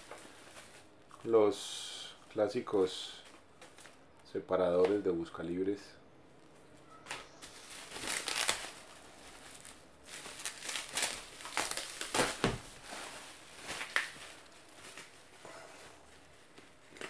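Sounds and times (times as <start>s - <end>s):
bubble wrap crinkling: 7.3s - 17.0s.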